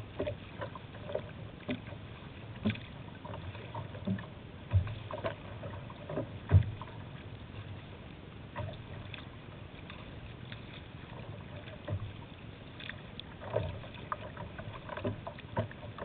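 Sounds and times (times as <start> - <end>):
water slapping against kayak hull: 0.0 - 16.0
wind: 0.0 - 16.0.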